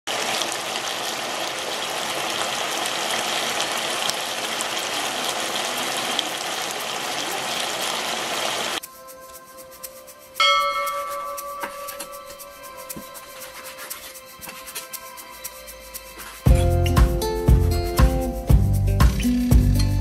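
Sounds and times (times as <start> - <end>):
meat sizzling in frying pan: 0.1 - 8.8.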